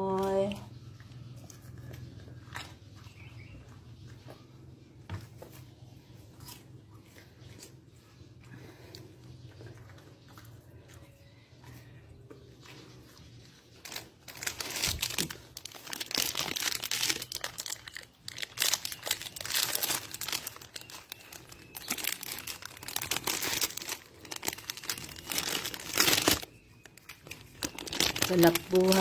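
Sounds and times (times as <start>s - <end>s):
plastic packaging crinkling: 13.7s - 29.0s.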